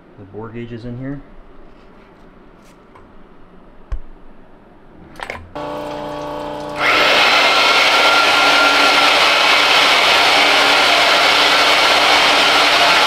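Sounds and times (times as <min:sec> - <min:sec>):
honing machine grinding: 0:05.6 - 0:13.0
motor whine: 0:05.6 - 0:13.0.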